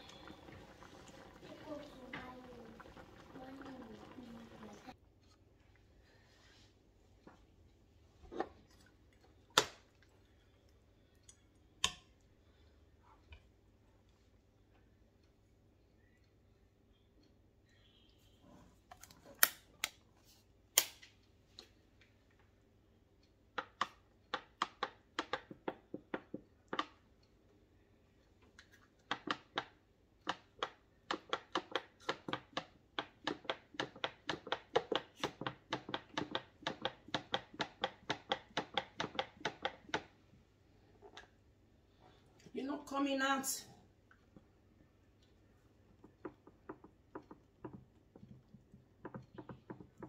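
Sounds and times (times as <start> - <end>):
utensil knocking on hard surface: 31.1 - 40.1, 46.0 - 48.3.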